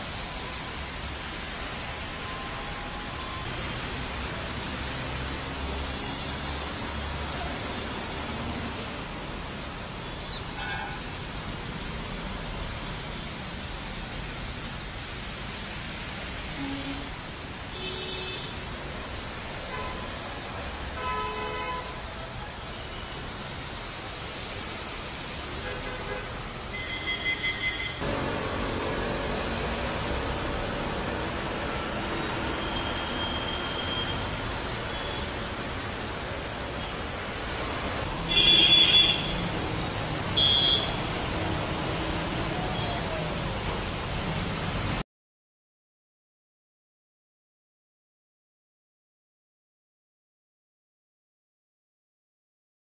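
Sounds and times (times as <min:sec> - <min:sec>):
heavy rain hissing: 0:00.0 - 0:45.0
traffic on a wet road: 0:00.0 - 0:45.0
vehicle horn toots: 0:38.3 - 0:39.4, 0:40.4 - 0:41.0.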